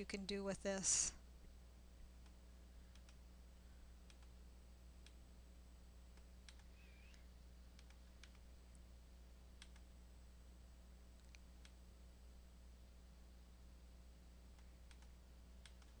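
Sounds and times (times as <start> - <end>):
low steady hum: 0.0 - 16.0
computer mouse clicks: 2.2 - 3.2, 4.0 - 4.4, 6.1 - 8.5, 9.6 - 9.9, 11.2 - 11.8, 14.5 - 16.0.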